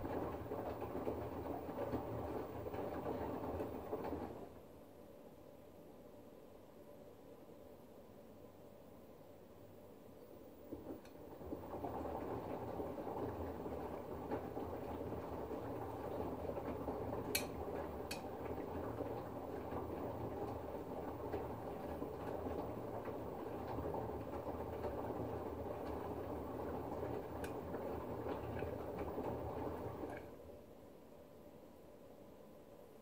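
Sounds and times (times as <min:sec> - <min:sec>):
washing machine motor running: 0:00.0 - 0:04.6, 0:10.7 - 0:30.4
water and laundry sloshing: 0:10.7 - 0:30.4.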